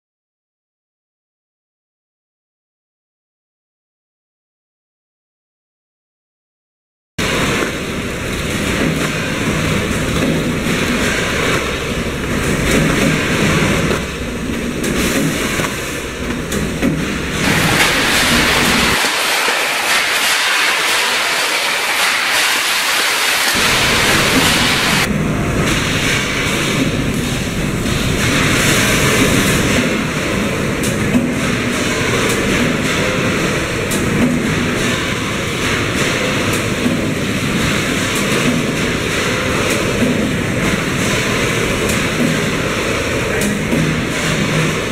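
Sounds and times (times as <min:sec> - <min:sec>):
factory machinery running: 0:07.2 - 0:44.9
high machine hiss: 0:17.1 - 0:29.8.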